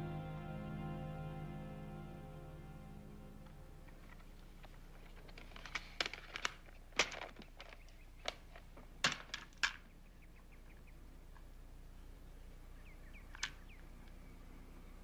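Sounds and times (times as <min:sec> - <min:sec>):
plastic cassettes clicking and clattering: 0:04.6 - 0:09.8.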